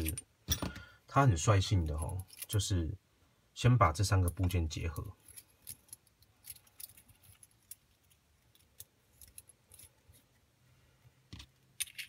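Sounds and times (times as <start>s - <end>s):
small metal parts clicking: 1.8s - 2.6s, 5.2s - 10.3s, 11.3s - 12.0s.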